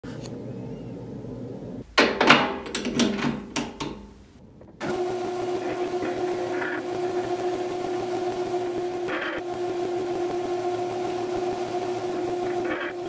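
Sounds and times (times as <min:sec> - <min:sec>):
metal lathe humming: 0:04.8 - 0:13.0.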